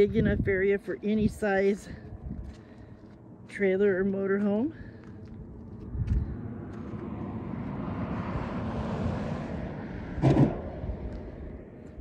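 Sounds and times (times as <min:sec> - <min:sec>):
vehicle tyre noise passing: 0:05.4 - 0:12.0.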